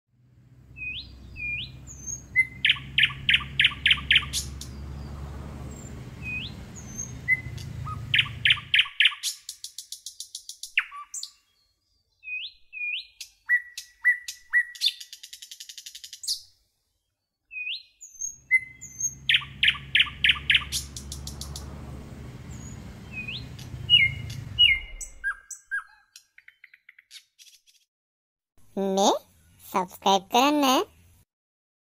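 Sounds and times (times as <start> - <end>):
squirrel chirping call: 0.8 - 5.1, 5.8 - 11.4, 17.5 - 21.7, 22.5 - 27.1.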